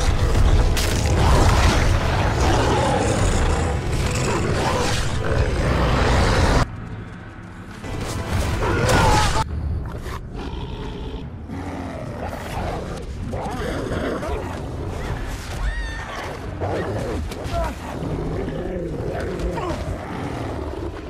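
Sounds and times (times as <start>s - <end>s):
wolf-like snarling roar: 1.1s - 6.6s.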